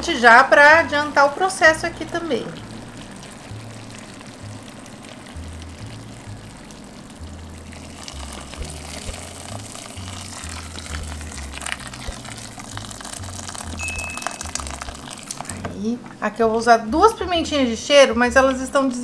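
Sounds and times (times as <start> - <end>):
background music with bass line: 0.8 - 15.8
water pouring and splashing: 2.6 - 15.8.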